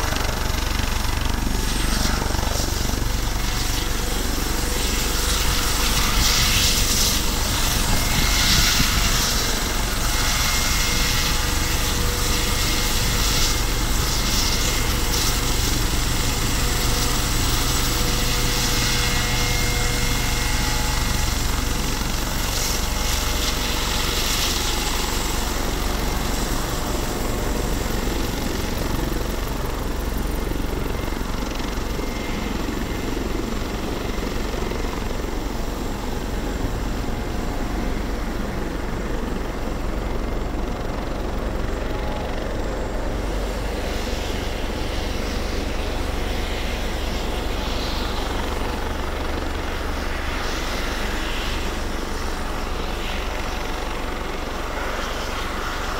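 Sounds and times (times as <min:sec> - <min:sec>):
helicopter rotor noise: 0:00.0 - 0:55.9
helicopter turbine whine: 0:00.0 - 0:55.9.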